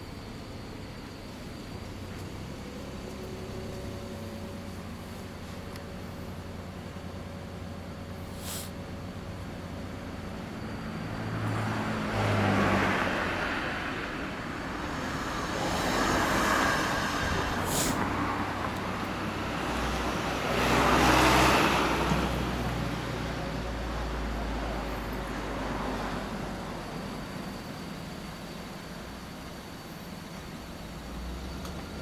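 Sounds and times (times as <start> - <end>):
cars passing: 8.0 - 28.2.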